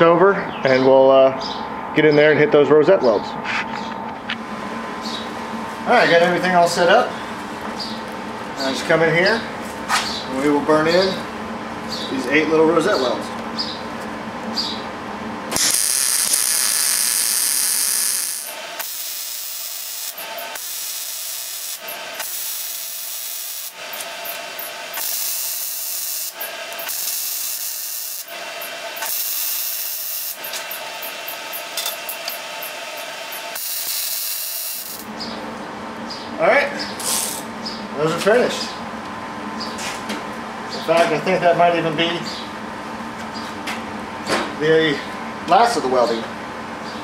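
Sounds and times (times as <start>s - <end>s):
welder arc crackling: 15.5s - 35.1s.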